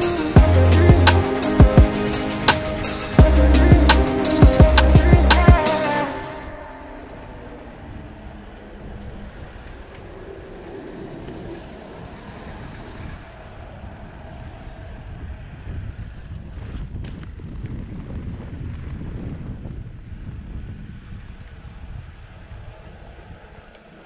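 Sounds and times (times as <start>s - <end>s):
wind noise on microphone: 6.4s - 24.0s
tyre noise on asphalt: 6.5s - 24.0s.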